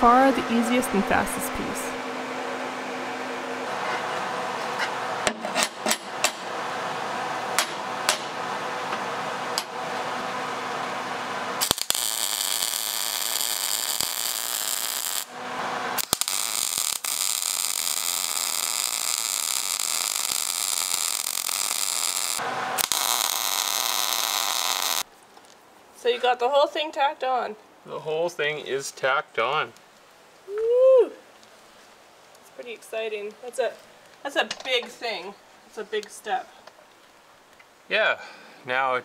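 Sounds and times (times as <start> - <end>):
welder arc crackling: 11.6 - 25.1.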